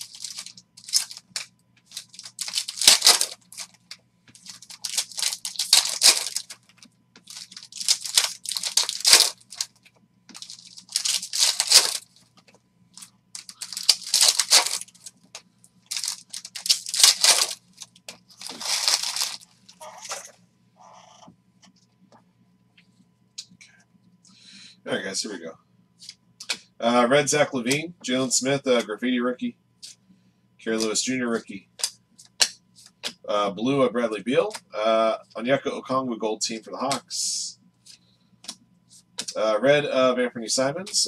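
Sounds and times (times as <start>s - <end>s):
foil wrappers tearing and crinkling: 0.0s - 3.8s, 4.4s - 12.2s, 13.4s - 15.1s, 15.9s - 20.2s.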